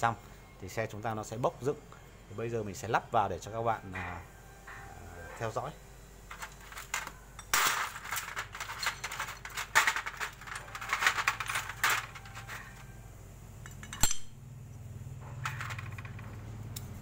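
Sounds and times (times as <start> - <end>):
metal parts clinking on tray: 6.3 - 13.0, 13.6 - 14.3, 15.2 - 16.4.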